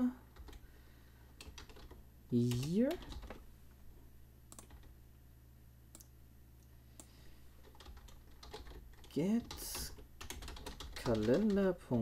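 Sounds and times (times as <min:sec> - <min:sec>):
steady low hum: 0:00.0 - 0:12.0
computer key clicks: 0:04.5 - 0:04.9.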